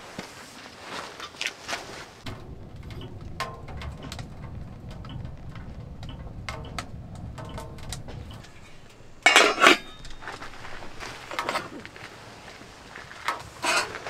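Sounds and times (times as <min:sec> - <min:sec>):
wood fire crackling: 0:01.6 - 0:14.0
low steady rumble: 0:02.2 - 0:14.0
metal pot lid clattering: 0:08.7 - 0:11.9.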